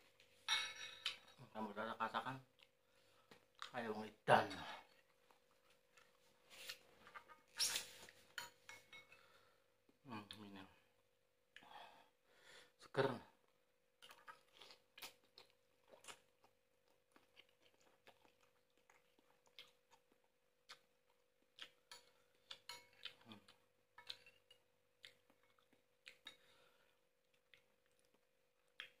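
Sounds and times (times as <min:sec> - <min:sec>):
chewing and mouth sounds: 0:14.0 - 0:29.0.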